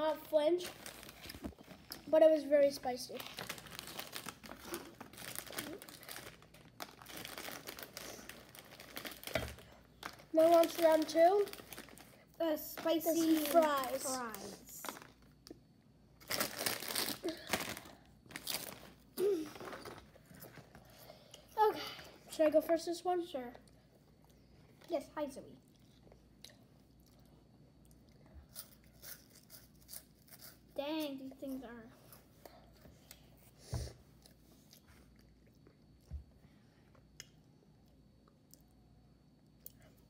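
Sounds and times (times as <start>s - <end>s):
plastic chip bag crinkling: 0.6s - 2.0s, 3.1s - 15.4s, 16.2s - 20.0s
child chewing: 3.2s - 10.2s, 25.6s - 30.6s, 34.1s - 36.2s.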